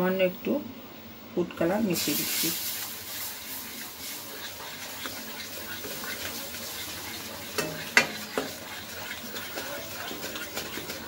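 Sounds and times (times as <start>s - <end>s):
frying sizzle: 1.6s - 11.0s
wooden spatula scraping pan: 2.6s - 11.0s
spatula knocking on pan: 7.5s - 11.0s.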